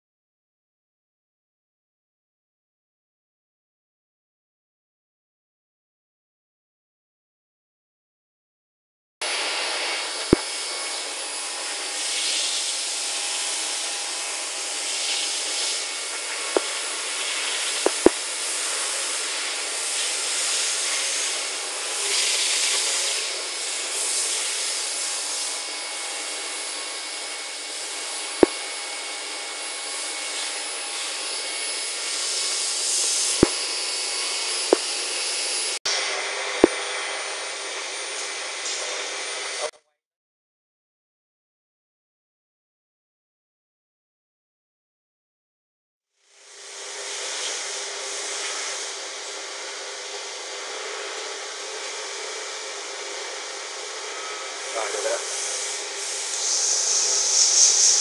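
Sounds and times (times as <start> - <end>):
milling machine hiss and whine: 9.2 - 39.7, 46.3 - 58.0.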